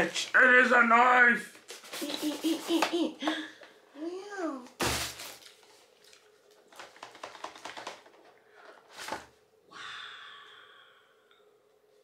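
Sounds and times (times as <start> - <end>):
packaging crackles and taps: 6.5 - 8.3.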